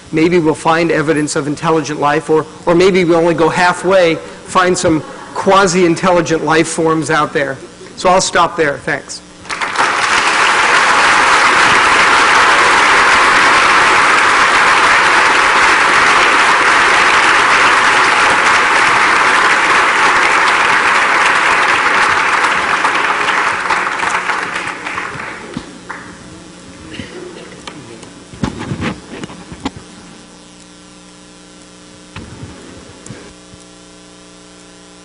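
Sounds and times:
audience applauding: 0:09.4 - 0:26.2.

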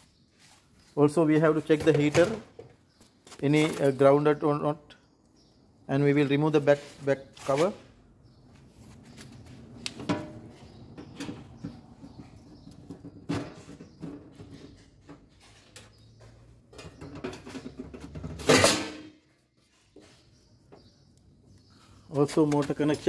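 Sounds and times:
metal cover clicks and knocks: 0:09.9 - 0:10.4, 0:16.7 - 0:19.2
metal clatter: 0:16.7 - 0:19.2.

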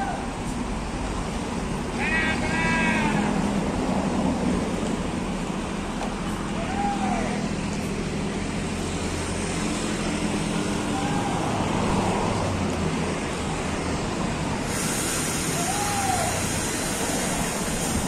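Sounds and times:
diesel bus engine idling: 0:00.0 - 0:18.0
outdoor traffic noise: 0:00.0 - 0:18.0.

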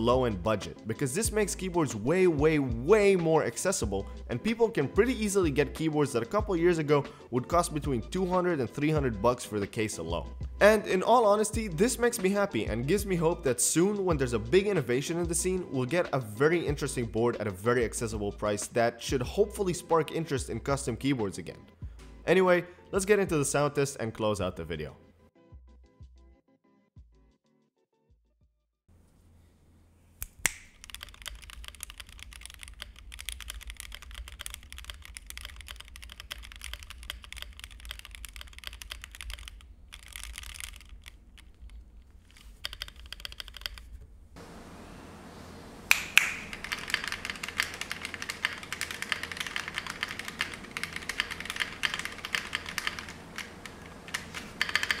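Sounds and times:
mechanical keyboard key clacks: 0:30.7 - 0:43.9, 0:45.9 - 0:55.0
room hiss: 0:44.1 - 0:55.0.

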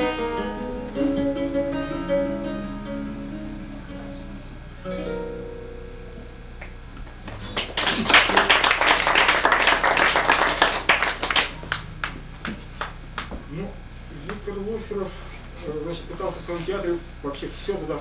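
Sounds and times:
classical guitar chord: 0:00.0 - 0:08.7
applause: 0:07.2 - 0:13.3.

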